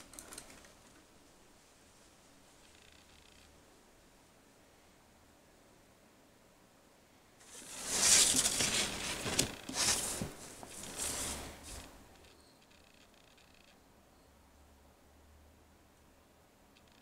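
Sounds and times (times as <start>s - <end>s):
paper rustling and scraping on table: 7.4s - 12.0s.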